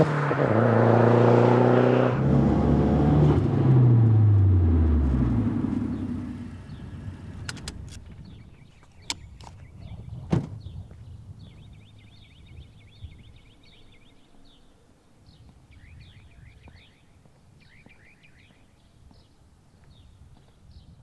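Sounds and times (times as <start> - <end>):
low steady rumble: 3.8 - 8.7
small birds chirping: 5.7 - 21.0
car door slamming: 10.3 - 10.6.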